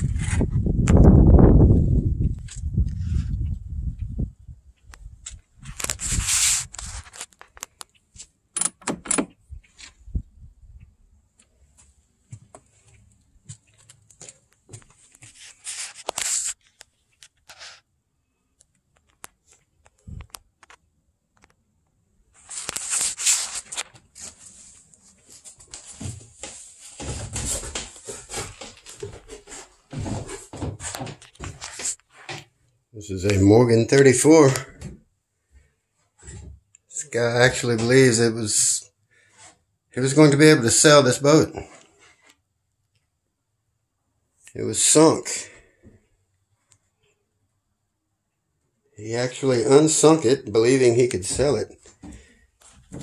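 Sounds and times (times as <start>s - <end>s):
knocks and clicks: 8.6s - 9.4s
rustling: 22.3s - 32.6s.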